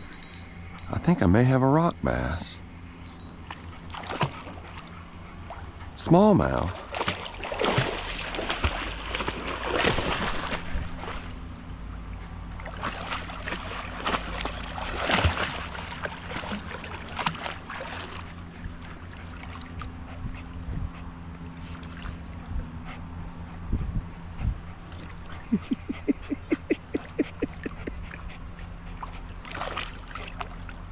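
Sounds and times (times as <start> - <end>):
dog wading in water: 3.4 - 23.6, 24.2 - 30.9
dog splashing through water: 3.8 - 4.9, 6.5 - 11.5, 12.6 - 20.0, 29.0 - 30.9.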